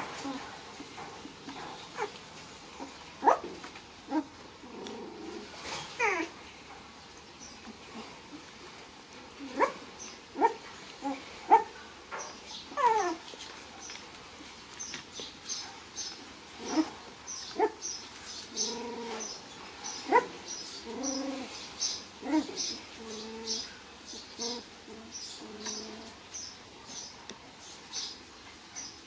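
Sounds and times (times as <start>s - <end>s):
puppy whines: 4.1s - 6.4s, 12.7s - 13.2s, 22.2s - 23.6s
puppies yelping: 12.7s - 13.2s, 18.5s - 21.5s, 22.2s - 23.6s.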